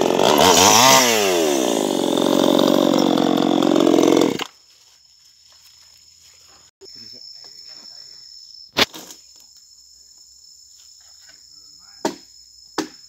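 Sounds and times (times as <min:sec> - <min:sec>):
insects chirring: 0:04.1 - 0:13.0.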